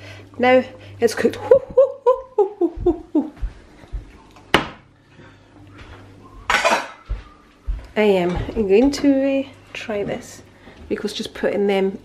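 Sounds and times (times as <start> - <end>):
pots and utensils clattering: 6.5 - 7.0.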